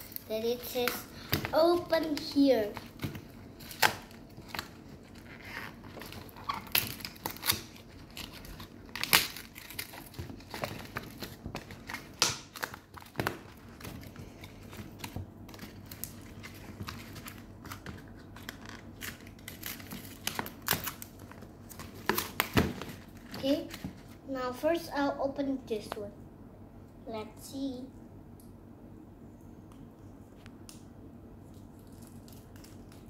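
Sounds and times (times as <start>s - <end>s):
cardboard packaging crinkling and tearing: 1.6s - 24.1s.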